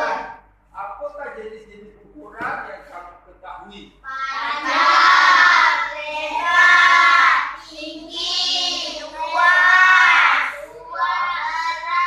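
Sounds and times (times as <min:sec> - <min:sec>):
children singing: 0:00.0 - 0:00.4, 0:04.1 - 0:12.0.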